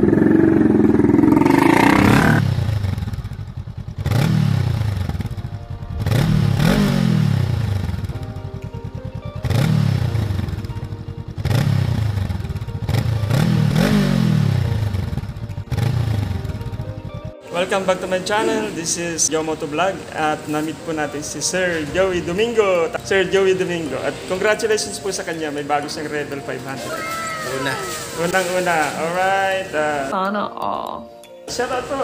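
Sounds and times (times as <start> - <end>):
motorcycle engine revving: 0.0 - 19.3
motorcycle passing: 0.0 - 26.4.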